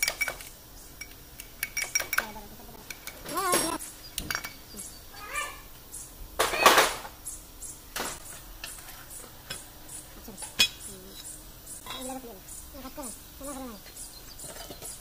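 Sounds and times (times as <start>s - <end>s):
metal clinking and knocking: 0.0s - 4.7s, 14.4s - 15.0s.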